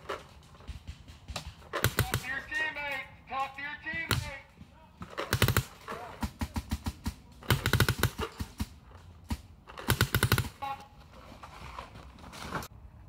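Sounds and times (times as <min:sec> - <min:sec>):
paintball marker rapid firing: 0:00.0 - 0:02.6, 0:03.9 - 0:10.6.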